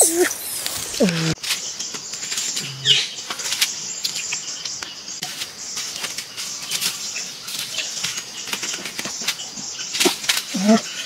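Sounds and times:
rustling dry leaves and wicker: 0:00.5 - 0:04.5, 0:05.2 - 0:11.0.

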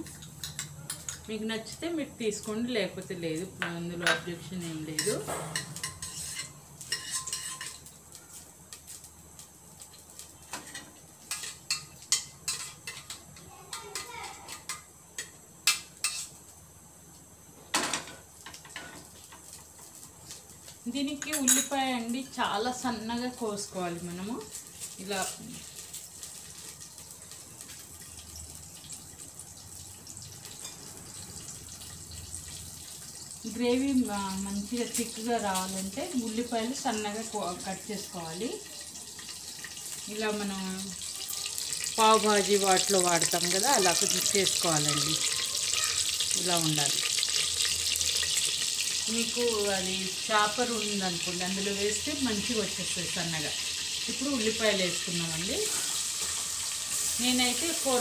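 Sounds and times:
oil sizzling in a pot: 0:00.0 - 0:58.0
metal spoon scraping a pot: 0:05.0 - 0:07.8.

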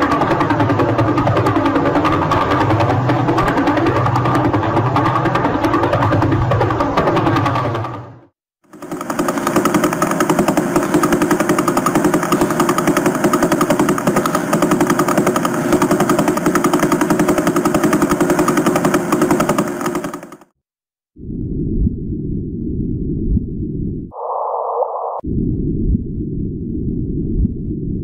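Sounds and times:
rapid train of pulses: 0:00.0 - 0:20.6.

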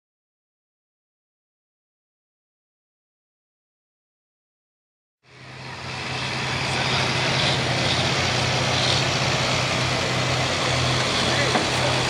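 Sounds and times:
supercharged engine idling: 0:05.3 - 0:12.0.

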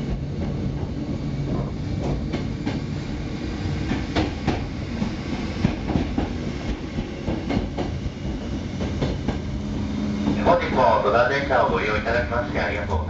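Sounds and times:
electric train rumbling on track: 0:00.0 - 0:13.0.

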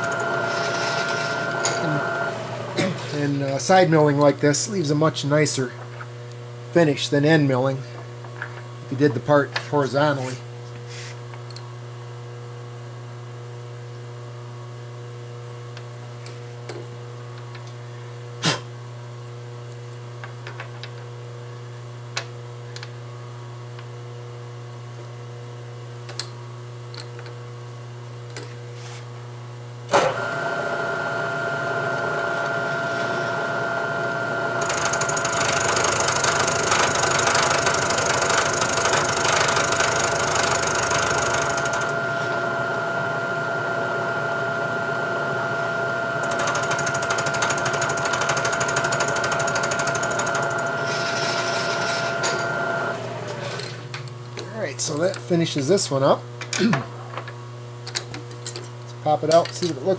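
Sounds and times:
milling machine spindle whine: 0:00.0 - 0:03.9, 0:29.9 - 0:53.7
end mill hissing cutting noise: 0:29.9 - 0:54.0.

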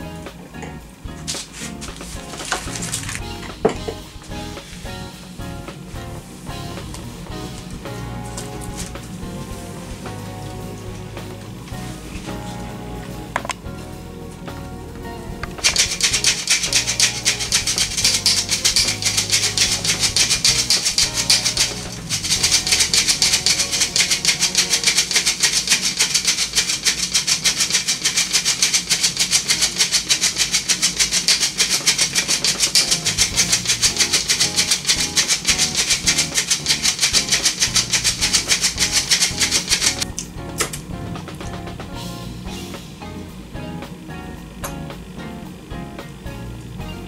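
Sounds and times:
metal flour sifter rasping: 0:01.2 - 0:12.9, 0:15.6 - 0:40.1.

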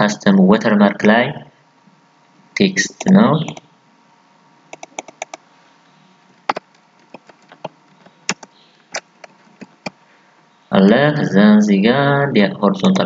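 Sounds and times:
computer keyboard typing: 0:04.7 - 0:05.4, 0:06.5 - 0:10.0.

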